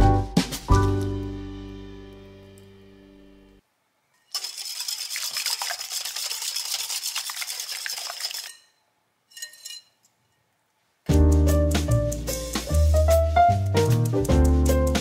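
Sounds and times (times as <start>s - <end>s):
whisk clinking: 4.2s - 10.1s
whisk clicking against glass bowl: 4.3s - 8.8s.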